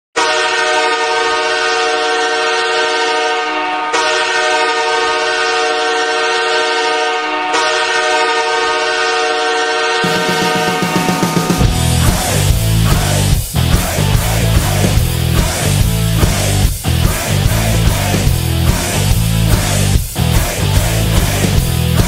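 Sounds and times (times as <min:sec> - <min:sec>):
goal horn blasts: 0:00.2 - 0:12.0.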